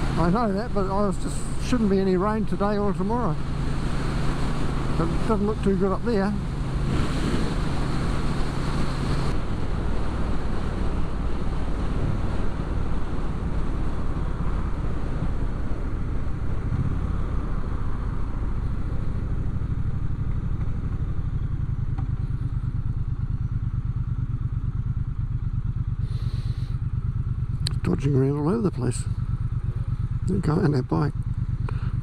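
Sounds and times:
wind rushing over microphone: 0.0s - 21.2s
motorcycle engine running: 0.0s - 32.0s.

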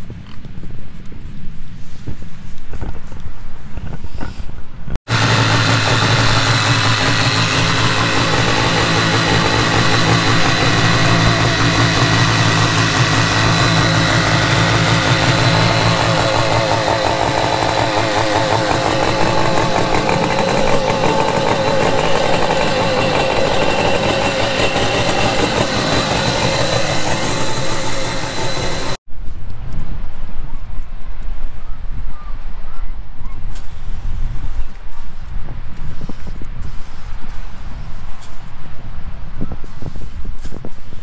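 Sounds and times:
jet ski engine idling: 5.1s - 29.0s.

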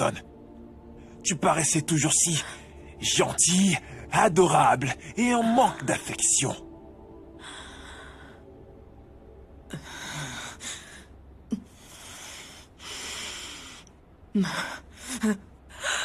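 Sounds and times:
woman breathing heavily: 7.4s - 8.6s, 9.7s - 16.0s.

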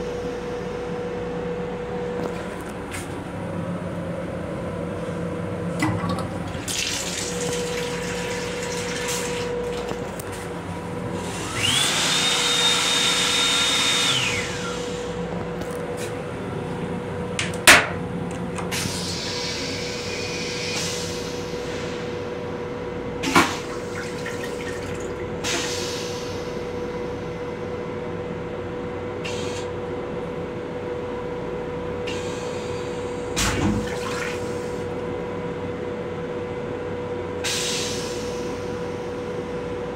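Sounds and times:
electrical hum: 0.0s - 37.4s
faucet running into basin: 5.8s - 10.2s, 23.6s - 25.3s.

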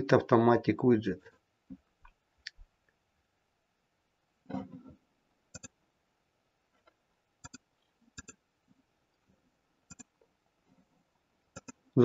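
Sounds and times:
computer mouse clicks: 5.5s - 5.8s, 7.4s - 8.4s, 9.9s - 10.2s, 11.5s - 11.8s.

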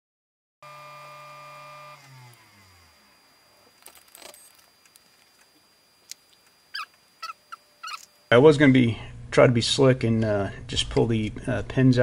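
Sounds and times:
electric motor humming: 0.6s - 8.3s.

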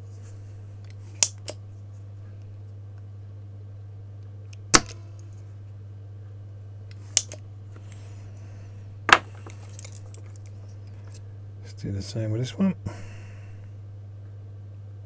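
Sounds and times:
steady low hum: 0.0s - 15.0s
desoldering pump snapping: 6.9s - 7.4s.

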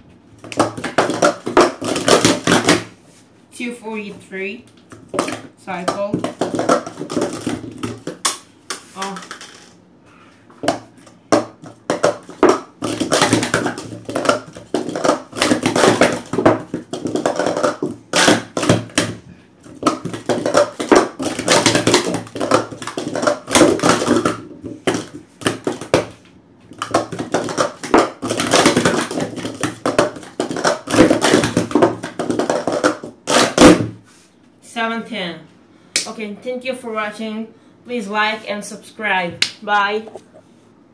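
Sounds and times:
plastic cups clattering: 0.4s - 2.9s, 4.9s - 9.8s, 10.6s - 33.9s.

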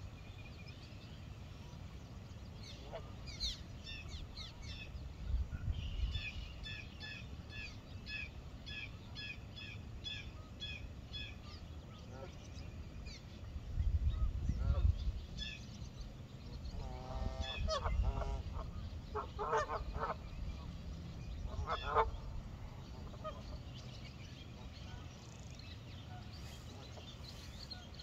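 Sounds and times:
geese honking: 16.8s - 20.3s, 21.5s - 22.3s.

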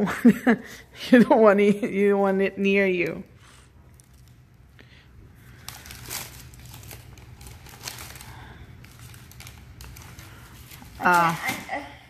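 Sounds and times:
plastic wrapper crinkling: 3.7s - 11.8s.

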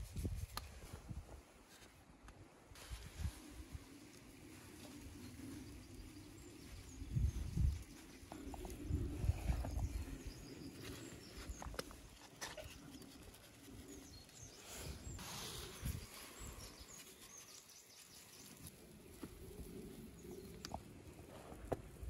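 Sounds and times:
salt sprinkling hiss: 2.8s - 8.9s.

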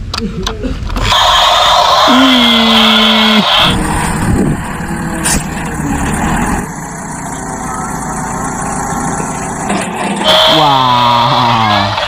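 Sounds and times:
dump truck engine running: 1.2s - 12.0s.

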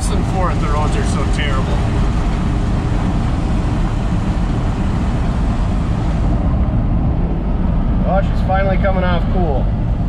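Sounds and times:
tyres on gravel road: 0.0s - 7.9s
truck engine rumbling: 0.0s - 10.0s.

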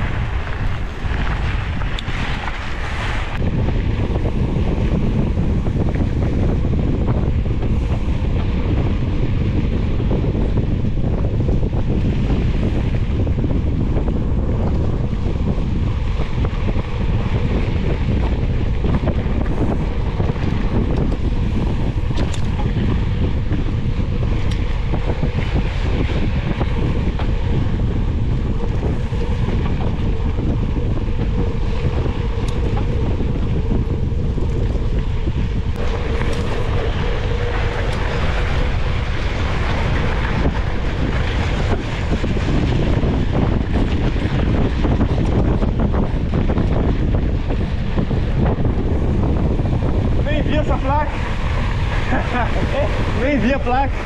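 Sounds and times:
wind buffeting microphone: 0.0s - 54.0s.

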